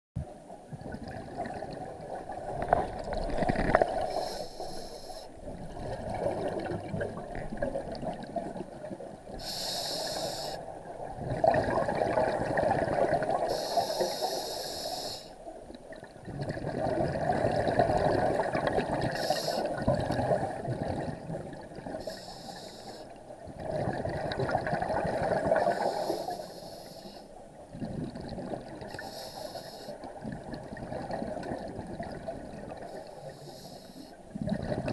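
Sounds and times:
diver breathing through regulator: 0:04.0 - 0:05.4, 0:09.4 - 0:10.6, 0:13.5 - 0:15.4, 0:19.1 - 0:19.7, 0:22.0 - 0:23.1, 0:25.6 - 0:27.3, 0:29.0 - 0:30.0, 0:32.9 - 0:34.2.

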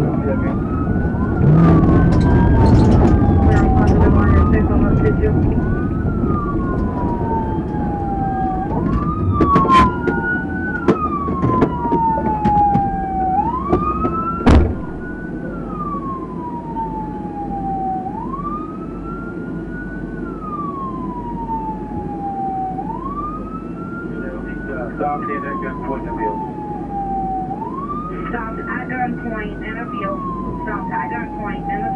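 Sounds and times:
car rumbling and rattling: 0:00.0 - 0:31.9
police siren wailing: 0:00.0 - 0:31.9
loud thump: 0:13.7 - 0:15.2.

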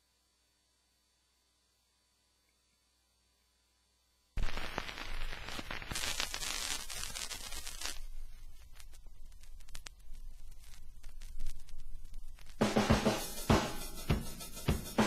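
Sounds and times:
vinyl record hiss and crackle: 0:00.0 - 0:15.0
vinyl ticks and pops: 0:04.4 - 0:12.6.

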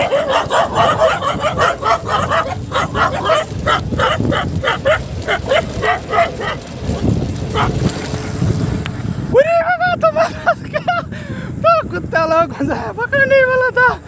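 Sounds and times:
dogs barking: 0:00.0 - 0:07.9
tyres rumbling on road: 0:00.0 - 0:12.4
wind on microphone: 0:00.0 - 0:14.0.

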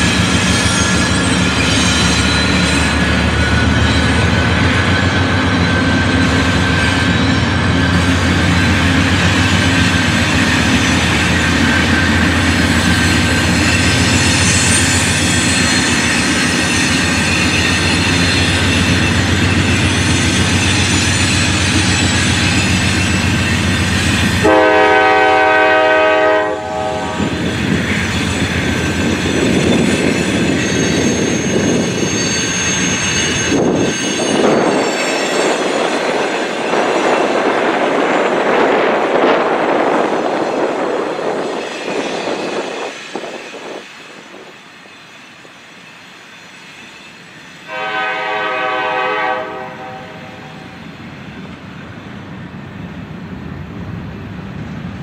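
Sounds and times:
freight train rolling past: 0:00.0 - 0:55.0
train air horn chord: 0:24.4 - 0:27.3, 0:47.7 - 0:50.8.

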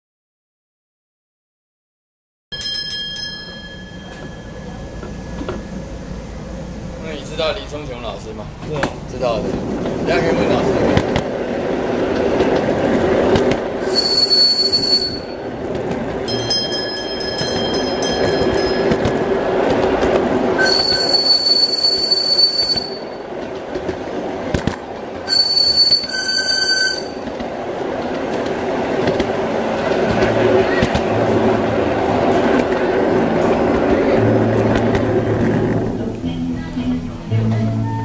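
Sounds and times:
wheel squeals: 0:13.8 - 0:15.4, 0:20.6 - 0:23.2, 0:25.2 - 0:27.3.

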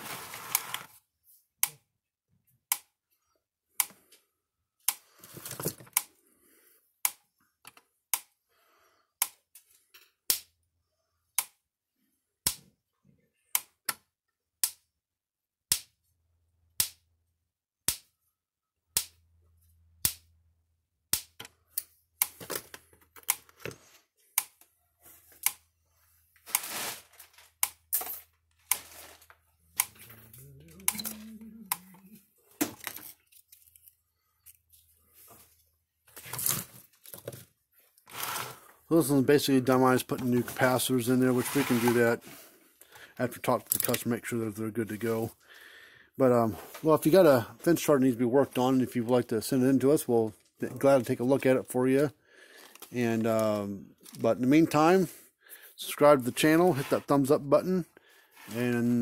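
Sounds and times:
handling and tool clatter: 0:26.4 - 0:31.2, 0:32.5 - 0:38.7.

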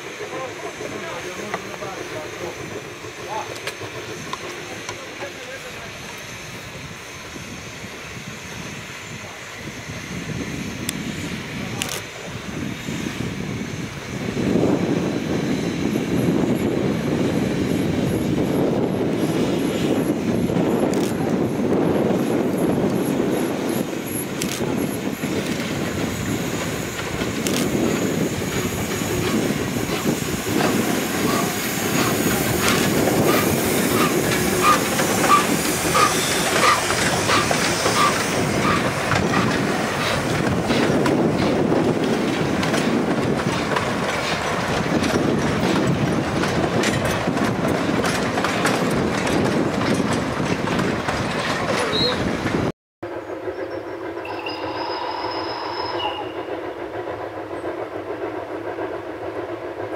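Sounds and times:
steam hissing: 0:00.0 - 0:46.8, 0:53.1 - 0:59.9
wheels clicking over rail joints: 0:28.6 - 0:52.6
engine and wagon wheels clattering: 0:30.6 - 0:52.6.

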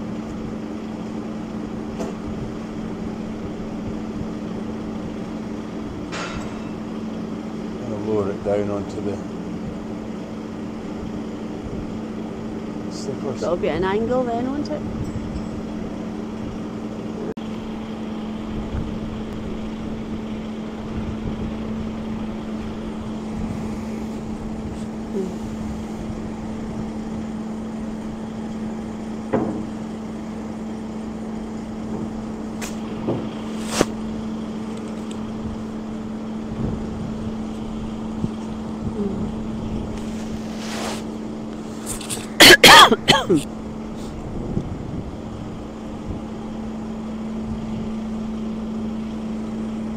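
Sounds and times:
heavy diesel machinery humming: 0:00.0 - 0:49.9
sharp metallic clanks: 0:06.1 - 0:06.9.

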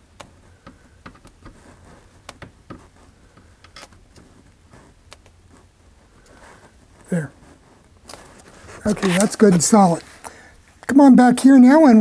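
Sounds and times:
microphone rubbing clicks and scrapes: 0:00.2 - 0:10.9.

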